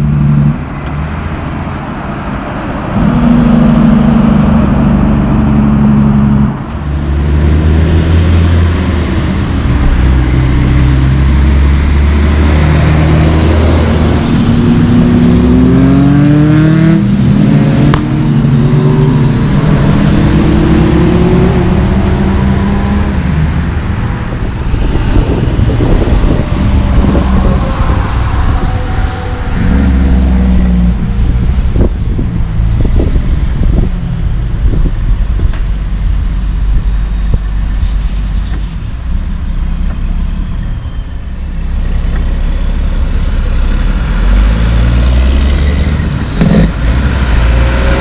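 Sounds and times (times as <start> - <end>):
diesel trucks driving past: 0.0 - 48.0
truck accelerating through gears: 0.0 - 48.0.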